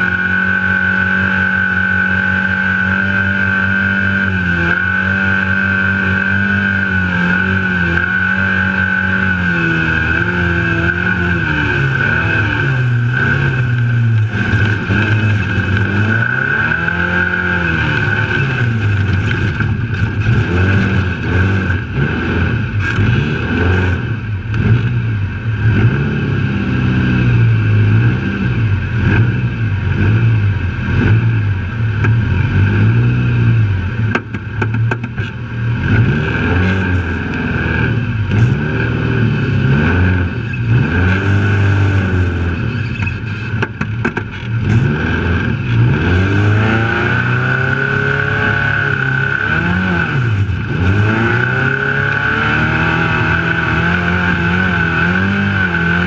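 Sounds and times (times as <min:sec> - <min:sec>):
steady high whine: 0:00.0 - 0:34.6
truck engine revving: 0:00.0 - 0:56.0
knocks and rattles: 0:43.0 - 0:44.5.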